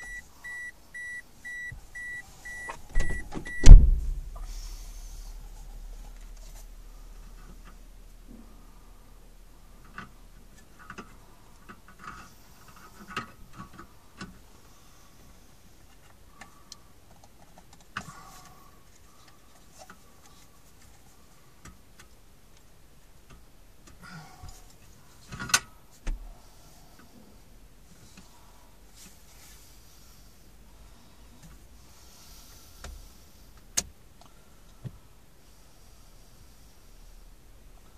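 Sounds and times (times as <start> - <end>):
handling noise: 0.0 - 4.5.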